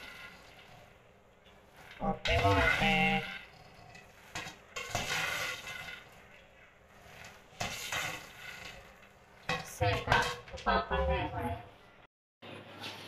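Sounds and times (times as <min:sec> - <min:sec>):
spoon scraping popcorn in a pot: 0:00.0 - 0:10.8.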